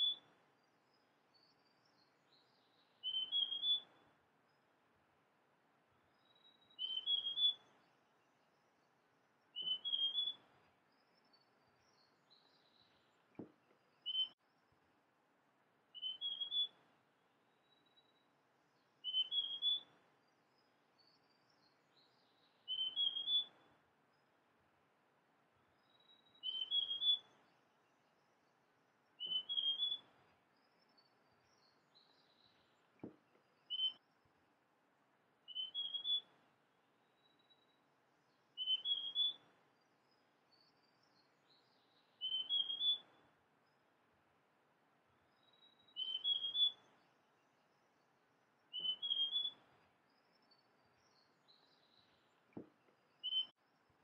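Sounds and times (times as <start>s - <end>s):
faint high bird calls: 0.0s - 4.6s, 6.1s - 14.8s, 15.9s - 24.3s, 25.6s - 34.4s, 35.4s - 43.9s, 45.1s - 54.0s
bird singing rising notes: 9.5s - 10.4s, 16.0s - 16.8s, 19.0s - 19.9s, 22.1s - 23.6s, 29.2s - 30.1s, 33.6s - 34.2s, 35.5s - 36.3s, 38.3s - 39.5s, 40.6s - 43.1s, 45.3s - 47.1s, 48.6s - 52.3s.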